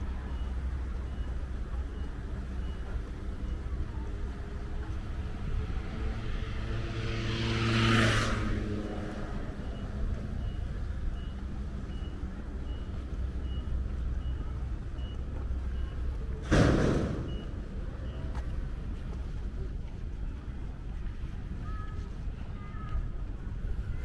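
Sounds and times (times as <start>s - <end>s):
road traffic rumbling: 0.0s - 24.0s
vehicle passing: 5.1s - 10.4s.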